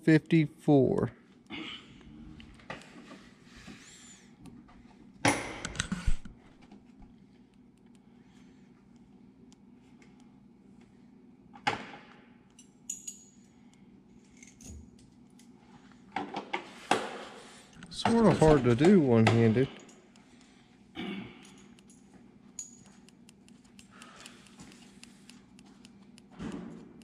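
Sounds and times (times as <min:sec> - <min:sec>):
steady low hum: 0:00.0 - 0:27.0
metallic clinks and clatter: 0:12.6 - 0:13.5, 0:21.4 - 0:23.1.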